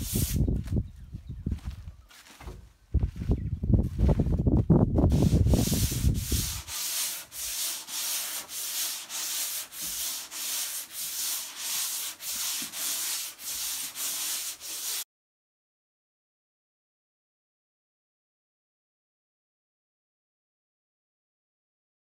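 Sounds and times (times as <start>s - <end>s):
sanding block rubbing: 0.0s - 0.4s, 5.1s - 15.0s.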